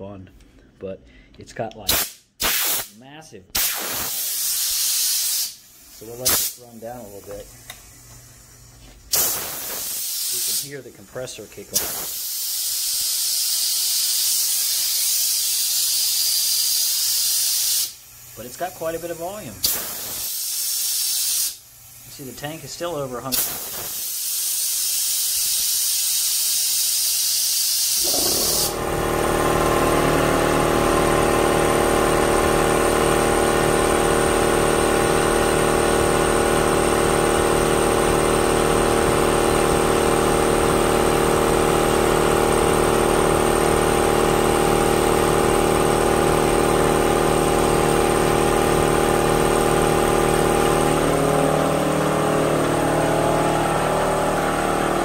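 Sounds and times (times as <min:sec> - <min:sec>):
compressed air hissing: 0:01.9 - 0:02.9, 0:03.6 - 0:07.2, 0:09.1 - 0:10.7, 0:11.8 - 0:18.5, 0:19.6 - 0:22.2, 0:23.3 - 0:28.8
air compressor running: 0:03.5 - 0:55.0.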